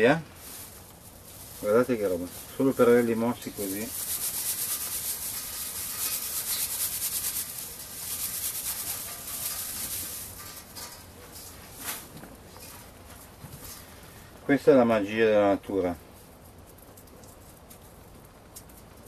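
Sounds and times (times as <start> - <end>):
dry seed pods crackling: 0.0 - 14.6
seeds rattling onto plastic tray: 0.6 - 11.5.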